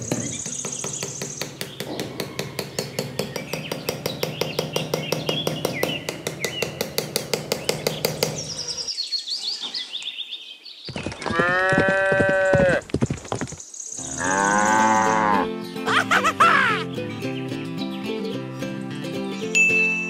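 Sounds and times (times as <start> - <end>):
hammer tapping wooden posts: 0.0 - 8.7
cow mooing: 14.1 - 15.5.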